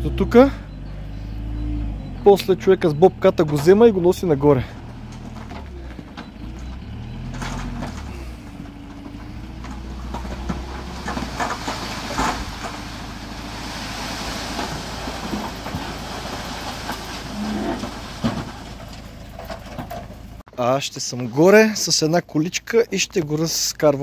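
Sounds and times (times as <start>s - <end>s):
truck engine running: 0.0s - 20.4s
soil sliding off truck bed: 7.2s - 20.4s.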